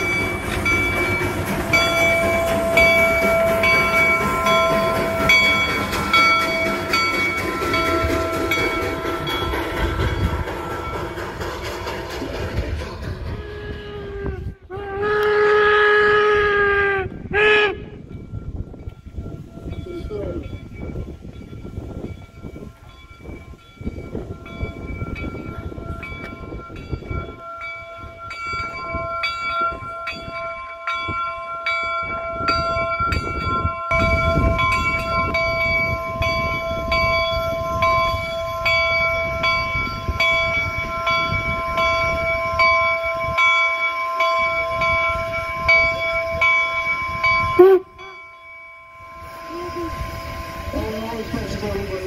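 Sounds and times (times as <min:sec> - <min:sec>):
locomotive bell ringing: 0:00.0 - 0:14.5, 0:17.9 - 0:52.0
locomotive rumbling on track: 0:00.0 - 0:52.0.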